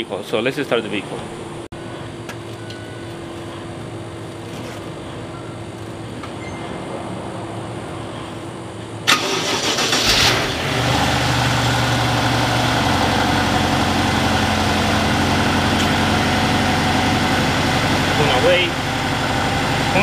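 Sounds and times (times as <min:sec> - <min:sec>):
car engine idling: 0:07.5 - 0:20.0.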